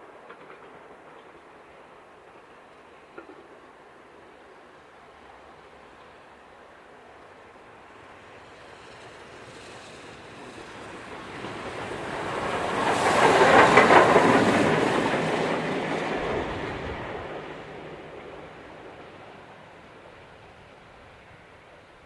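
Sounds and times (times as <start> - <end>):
train wheels: 0.0 - 3.7, 7.9 - 20.2
steam locomotive passing: 0.0 - 22.0.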